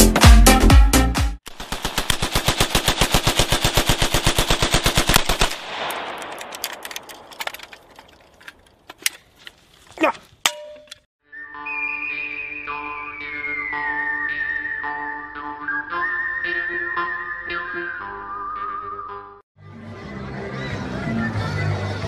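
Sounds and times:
dance music: 0:00.0 - 0:01.4
rifle firing automatic burst: 0:01.5 - 0:07.6
gunshot echo: 0:05.2 - 0:08.1.

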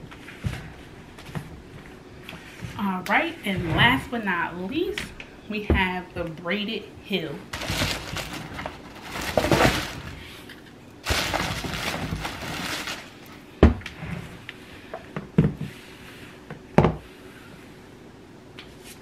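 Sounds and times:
rustling of handling: 0:07.5 - 0:13.4.

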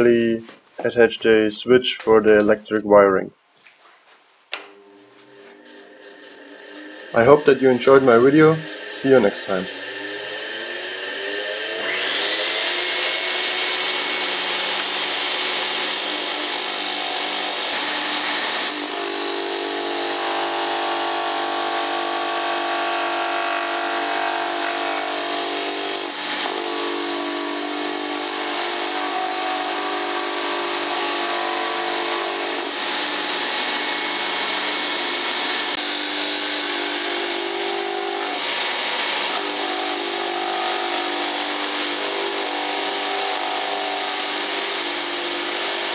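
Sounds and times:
disc sander motor whine: 0:04.8 - 0:16.0.

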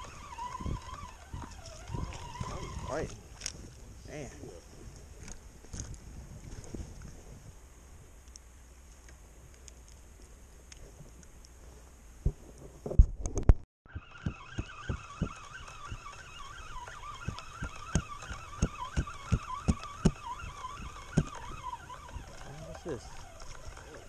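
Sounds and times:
fishing reel whirring: 0:00.0 - 0:03.7, 0:13.9 - 0:24.0.

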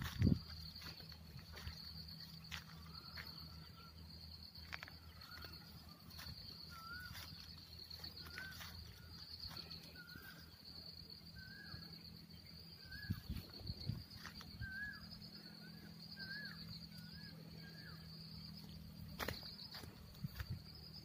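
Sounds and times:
insects trilling: 0:00.0 - 0:21.0
bird wavering call: 0:05.1 - 0:10.5, 0:14.2 - 0:18.2.

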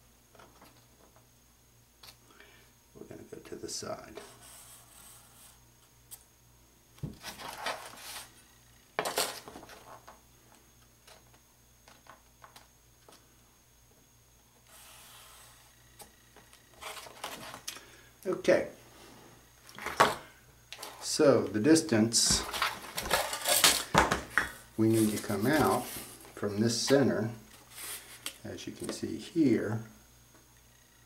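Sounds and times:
marker drawing a line: 0:04.2 - 0:05.6, 0:14.7 - 0:15.7
steel square scraping on cardboard: 0:14.7 - 0:15.7.

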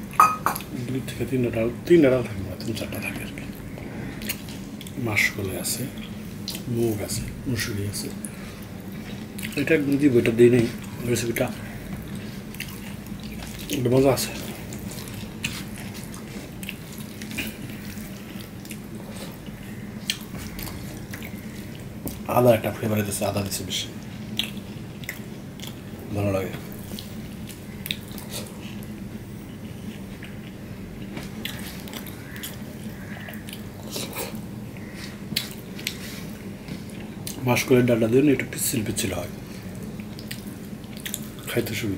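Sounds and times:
steady low hum: 0:00.0 - 0:41.9
wet chewing and lip-smacking: 0:08.9 - 0:09.6, 0:12.0 - 0:22.3, 0:24.2 - 0:25.9, 0:26.8 - 0:29.0, 0:29.6 - 0:37.4, 0:39.8 - 0:41.5
person eating: 0:11.8 - 0:22.3, 0:26.8 - 0:37.4.

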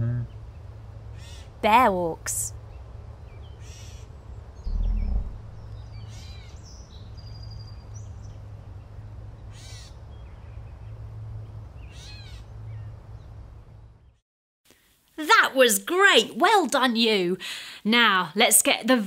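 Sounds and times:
steady low hum: 0:04.3 - 0:06.0
short low rumble: 0:04.6 - 0:06.0.

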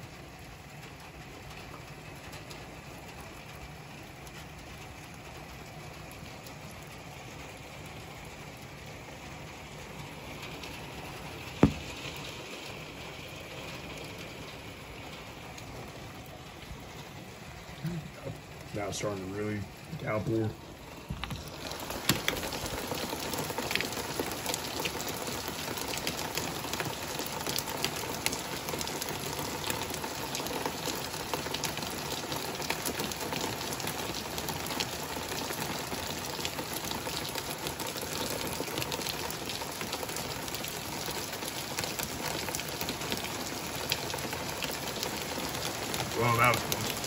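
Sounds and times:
raindrops clicking on surfaces: 0:00.0 - 0:47.0
torrential rain pouring: 0:00.0 - 0:47.0.

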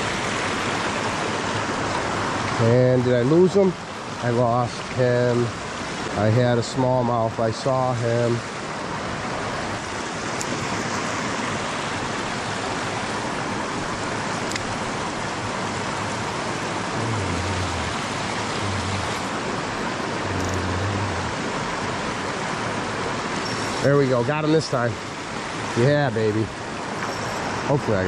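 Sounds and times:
creek water rushing over rocks: 0:00.0 - 0:28.0.

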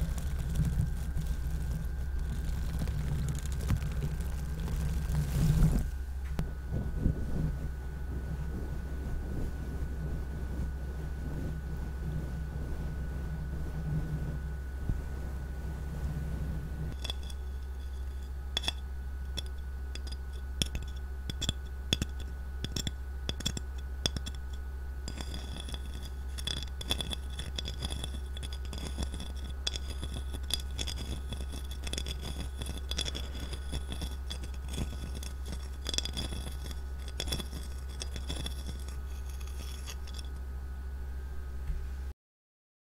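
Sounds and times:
light scrapes: 0:00.0 - 0:06.0, 0:22.0 - 0:40.4
steady low hum: 0:00.0 - 0:42.1.

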